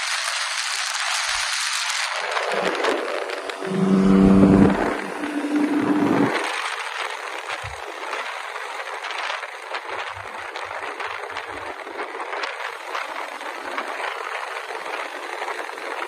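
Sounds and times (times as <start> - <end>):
road and wind noise: 0.0 - 16.0
short low rumbles: 2.6 - 6.5.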